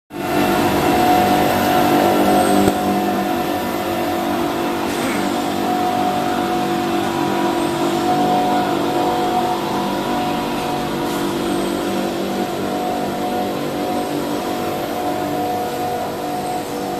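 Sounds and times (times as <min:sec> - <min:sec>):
steady machine hum: 0:00.1 - 0:16.9
held machine tones: 0:00.2 - 0:16.9.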